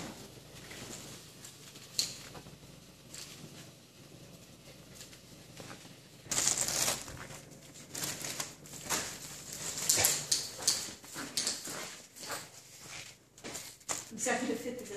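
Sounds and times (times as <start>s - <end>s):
foil balloon rustling: 0.0s - 11.2s.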